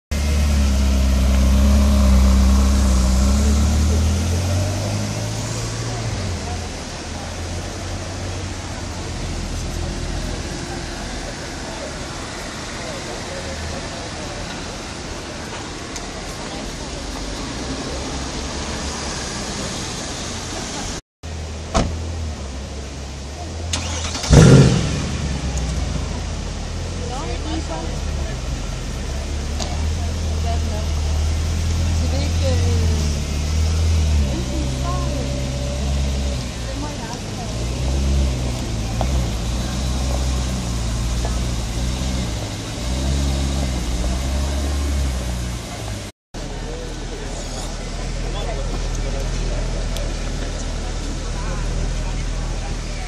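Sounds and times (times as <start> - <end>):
engine revving: 0.1 - 6.7, 23.7 - 26.4, 29.6 - 46.1
car engine low rumble: 0.1 - 53.0.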